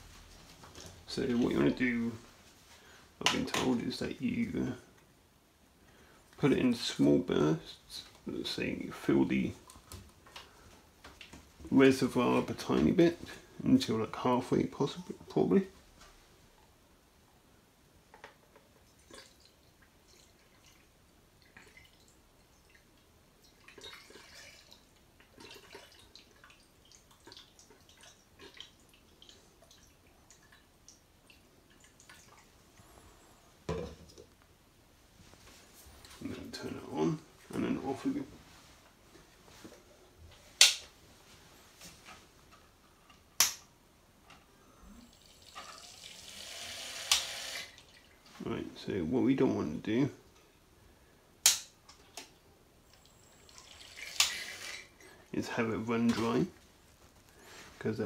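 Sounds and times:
liquid dripping and trickling: 0:18.4 - 0:32.9.

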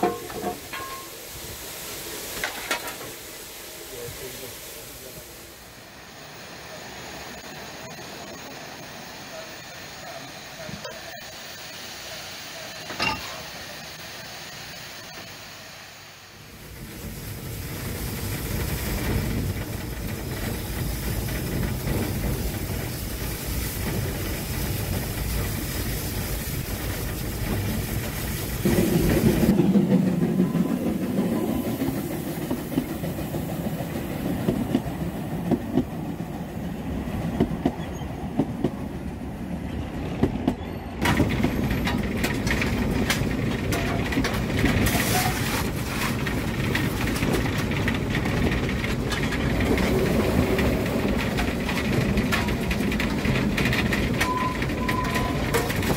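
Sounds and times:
steam train running: 0:00.0 - 0:55.9
wheels clattering over rails: 0:40.2 - 0:55.9.

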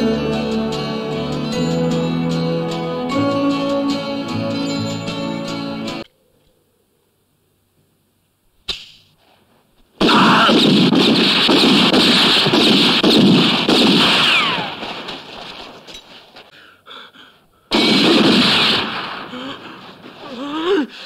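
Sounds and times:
pistol shot: 0:10.0 - 0:15.8, 0:17.7 - 0:19.8.

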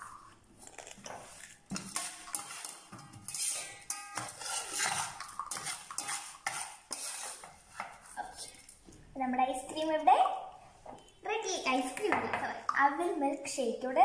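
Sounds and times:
spoon scraping ice cream: 0:00.6 - 0:08.4.

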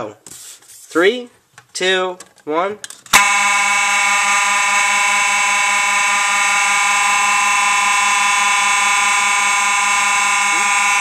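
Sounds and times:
fire alarm horns blaring: 0:03.2 - 0:11.0.

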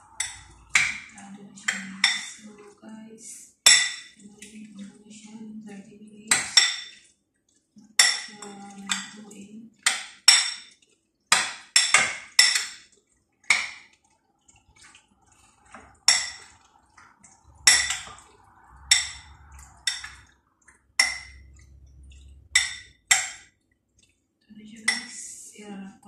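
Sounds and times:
spoon clinking against glass bowl: 0:00.0 - 0:02.5, 0:03.7 - 0:04.5, 0:06.3 - 0:07.1, 0:08.0 - 0:09.2, 0:09.8 - 0:12.8, 0:15.7 - 0:16.6, 0:17.6 - 0:18.2, 0:18.8 - 0:20.4, 0:21.0 - 0:23.4, 0:24.8 - 0:25.1.

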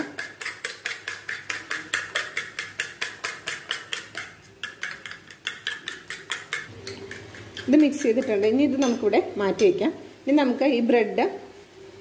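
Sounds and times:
spoon clinking on china plate: 0:03.5 - 0:09.8.

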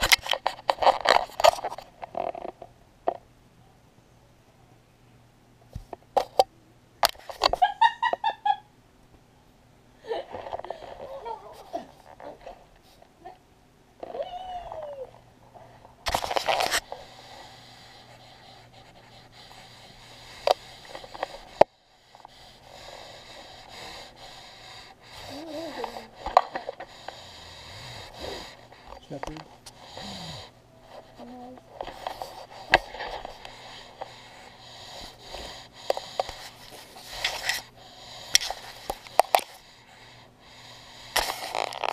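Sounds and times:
taps and scrapes on camera: 0:00.0 - 0:03.2, 0:05.7 - 0:07.7, 0:16.0 - 0:17.2, 0:18.1 - 0:22.4, 0:28.4 - 0:30.0, 0:30.9 - 0:34.3, 0:35.0 - 0:37.7, 0:38.3 - 0:39.6, 0:41.1 - 0:41.9
kitten scratching camera housing: 0:16.1 - 0:22.4
kitten sniffing: 0:16.1 - 0:41.9.

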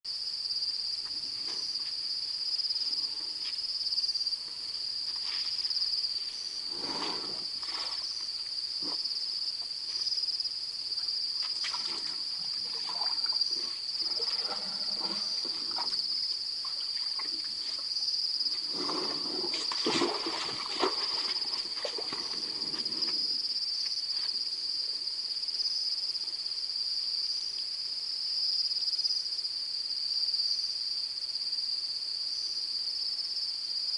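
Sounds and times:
night insects chorus: 0:00.1 - 0:33.9
splashing and trickling water: 0:06.7 - 0:08.3, 0:11.4 - 0:23.2.

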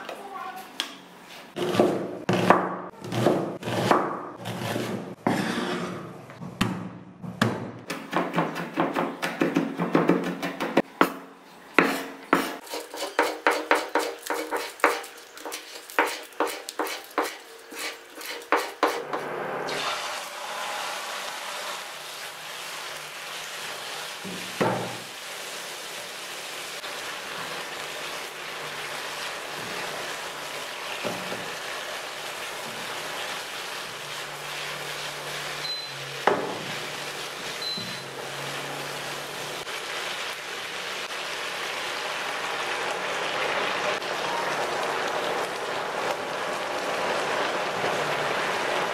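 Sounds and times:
knife chopping on wooden board: 0:01.6 - 0:05.4, 0:11.8 - 0:17.4
chicken sizzling in wok: 0:12.4 - 0:48.9
spatula knocking against pan: 0:13.1 - 0:15.0.

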